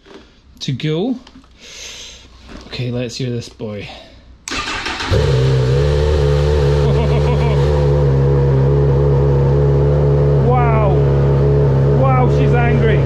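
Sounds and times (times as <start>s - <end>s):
motorcycle engine starting and idling: 4.5s - 13.0s.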